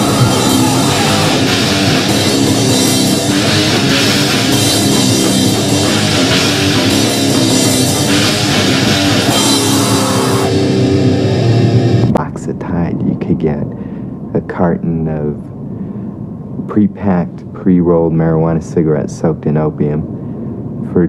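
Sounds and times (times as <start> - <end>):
electric guitars: 0.0 - 12.4
drum kit: 0.0 - 12.5.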